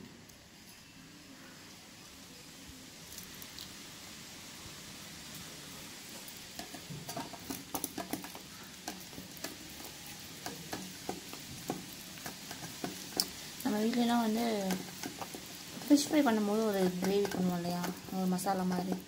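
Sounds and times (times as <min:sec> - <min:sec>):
sticky crackly clicks: 0:06.6 - 0:19.0.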